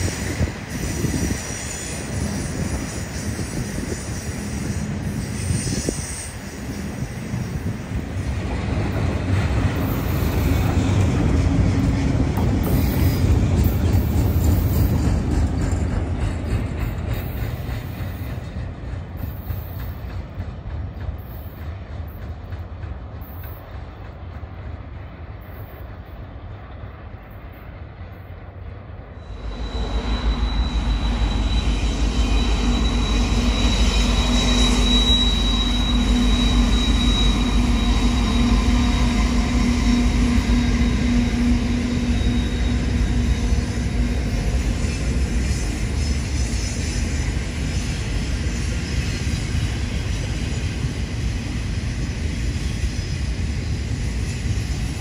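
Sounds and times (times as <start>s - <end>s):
diesel locomotive engine drone: 0.0s - 55.0s
high wheel squeal: 29.2s - 50.8s.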